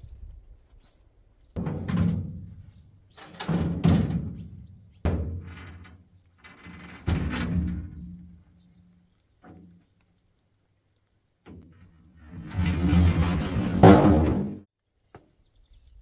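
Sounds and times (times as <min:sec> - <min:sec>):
metal board clanking: 0:01.6 - 0:02.6, 0:03.2 - 0:08.4, 0:12.3 - 0:14.6.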